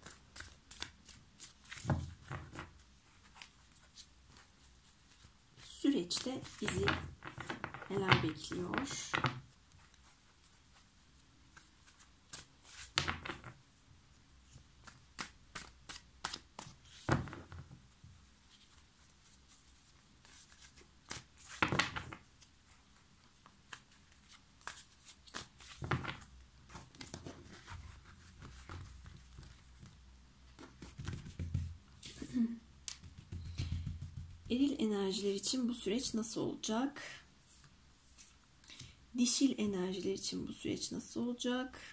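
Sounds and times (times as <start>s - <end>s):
cards being shuffled: 0.0s - 10.2s, 11.5s - 13.6s, 14.5s - 17.9s, 18.5s - 32.2s.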